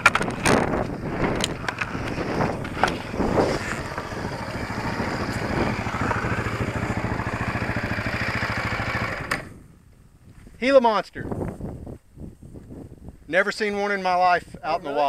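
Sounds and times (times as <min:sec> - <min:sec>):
knocks and clatter on rocks: 0:00.0 - 0:03.0
dirt bike engine putter: 0:00.0 - 0:09.6.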